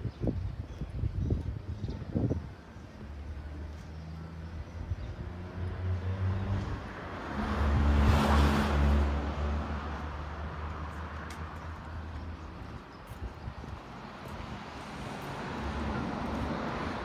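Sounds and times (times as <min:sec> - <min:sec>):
tyre and road noise: 0:01.2 - 0:17.0
car driving past: 0:05.8 - 0:10.9.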